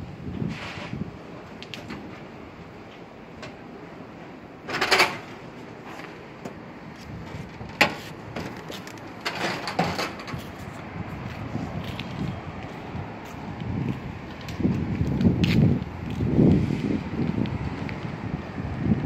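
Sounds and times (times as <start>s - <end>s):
steady outdoor hiss: 0.0s - 19.0s
footsteps: 5.8s - 18.1s.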